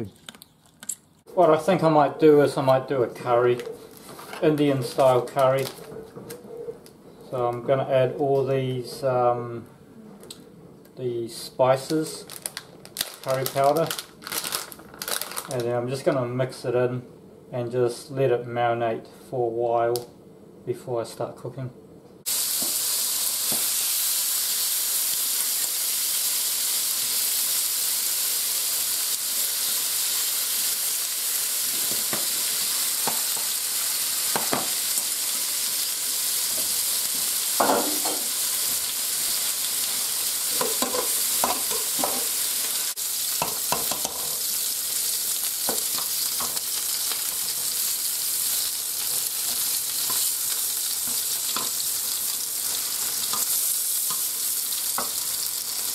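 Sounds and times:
meat sizzling in a frying pan: 22.3s - 55.9s.

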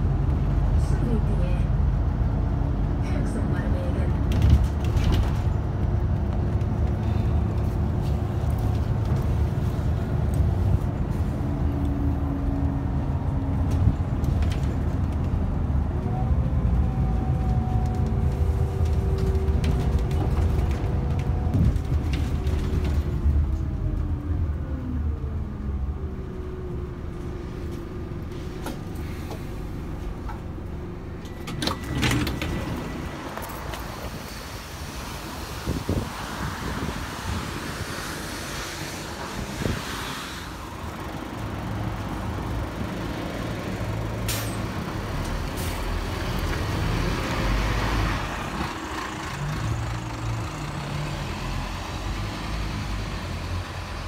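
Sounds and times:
bus diesel engine rumble: 0.0s - 54.0s
bus doors opening clatter: 4.1s - 11.6s, 17.0s - 23.7s, 27.2s - 36.0s, 43.7s - 50.2s.

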